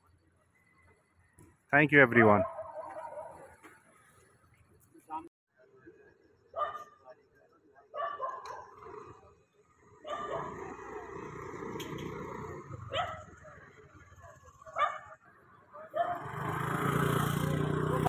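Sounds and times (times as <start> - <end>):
dog barking: 2.3 - 3.6, 6.6 - 7.0, 7.9 - 8.8, 10.0 - 10.8, 12.9 - 13.4, 14.7 - 15.2, 15.8 - 16.3.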